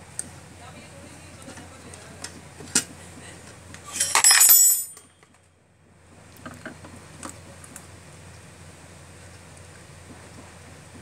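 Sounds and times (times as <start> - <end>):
small metal parts clinking: 3.8 - 5.1
ringing metallic clinks: 3.9 - 5.2.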